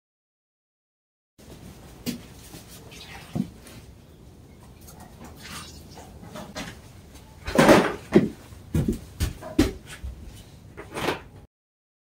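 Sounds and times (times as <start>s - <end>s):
dogs barking: 4.8s - 6.5s.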